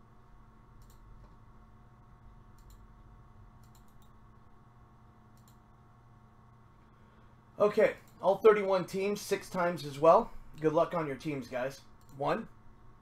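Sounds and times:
low steady hum: 0:00.0 - 0:13.0
computer mouse clicks: 0:00.8 - 0:01.4, 0:02.5 - 0:02.9, 0:03.6 - 0:04.2, 0:05.3 - 0:05.6, 0:12.0 - 0:12.2.

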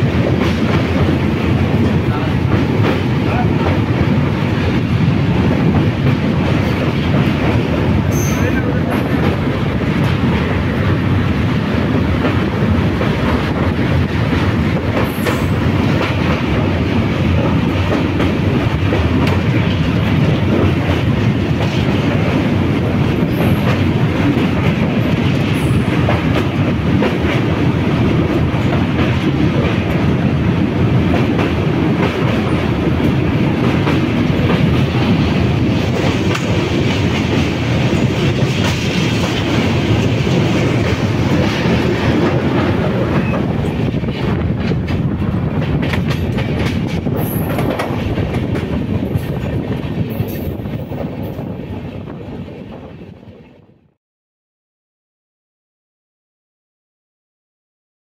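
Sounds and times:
clickety-clack of rail joints: 0:00.0 - 0:53.6
train wheels rumbling on rails: 0:00.0 - 0:54.0.

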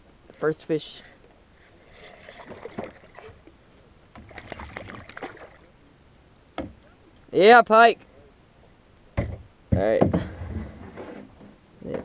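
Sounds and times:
fish splashing at water surface: 0:04.2 - 0:05.8.

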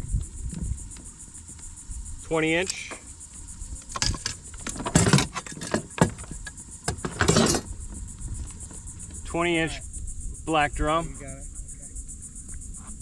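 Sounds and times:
insects buzzing: 0:00.0 - 0:13.0
fishing gear clattering: 0:02.3 - 0:03.1, 0:03.8 - 0:09.5.

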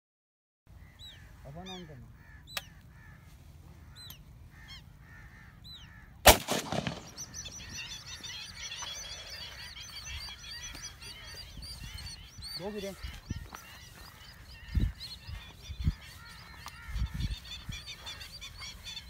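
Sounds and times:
bird calls: 0:00.7 - 0:19.0
waterbirds calling: 0:00.7 - 0:19.0
shotgun shot: 0:06.2 - 0:07.5.

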